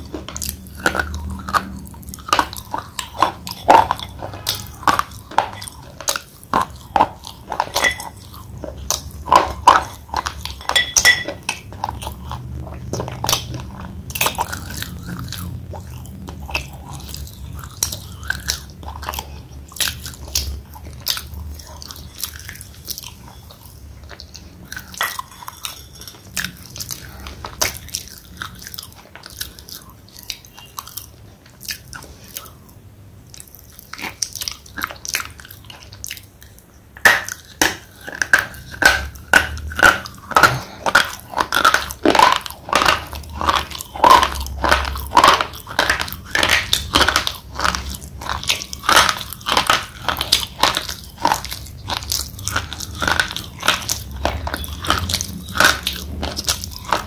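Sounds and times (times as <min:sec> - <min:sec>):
slate pencil being chewed: 0:00.0 - 0:32.6, 0:37.3 - 0:57.0.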